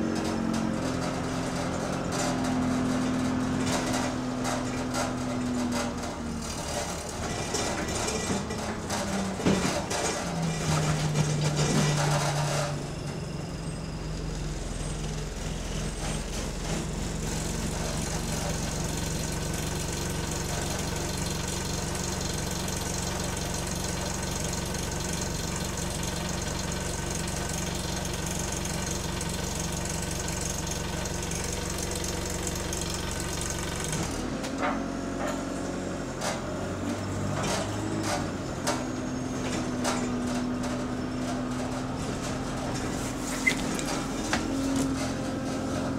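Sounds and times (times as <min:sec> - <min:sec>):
bus diesel engine running: 0:00.0 - 0:45.9
knocks and rattles: 0:00.1 - 0:12.8.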